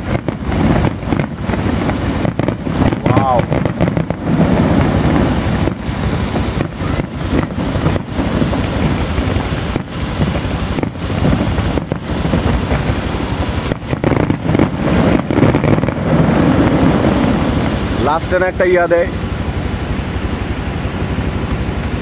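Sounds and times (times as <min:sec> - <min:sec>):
fireworks rumbling and crackling: 0:00.0 - 0:22.0.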